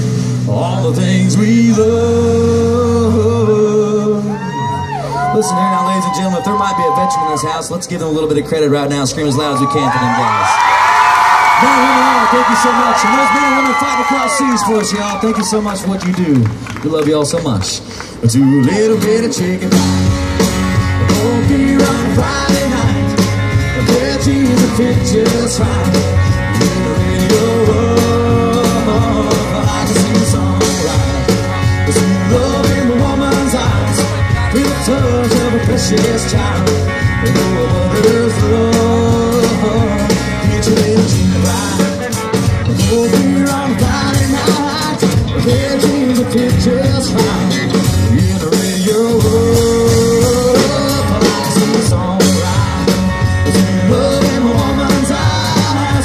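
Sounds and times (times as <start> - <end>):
electric guitar: 0.0 - 5.9, 17.8 - 56.0
man singing into a microphone: 0.0 - 7.3, 18.2 - 20.2, 21.0 - 56.0
strummed acoustic guitar: 19.0 - 56.0.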